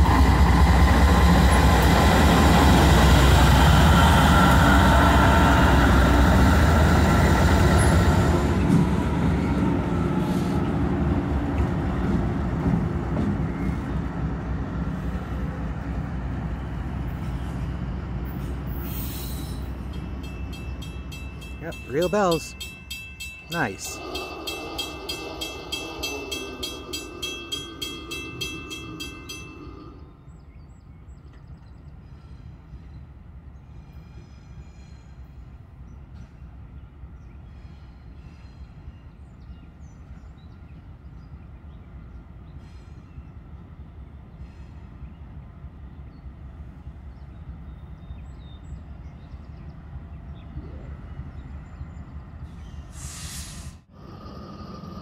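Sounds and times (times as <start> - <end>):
diesel locomotive rumbling: 0.0 - 55.0
crossing bells ringing rapidly: 19.8 - 30.0
brief rush of noise: 53.0 - 53.9.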